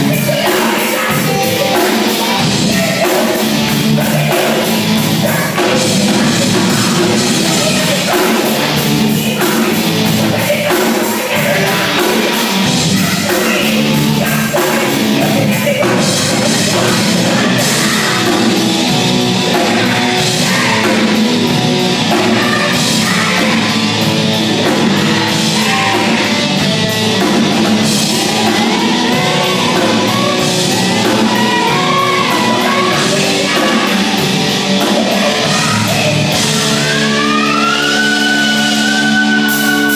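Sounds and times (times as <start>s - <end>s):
live rock band playing: 0.0s - 39.9s
person singing: 0.0s - 39.9s.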